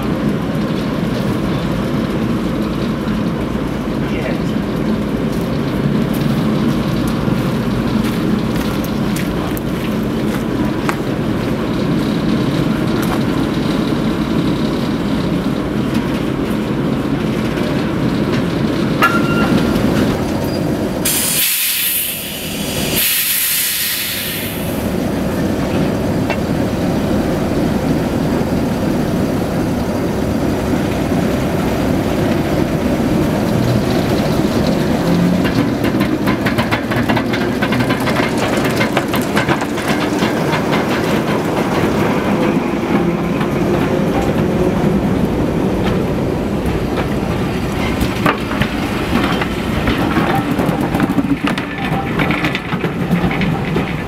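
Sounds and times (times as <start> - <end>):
train coaches rumbling: 0.0 - 54.0
steam hiss: 21.0 - 25.0.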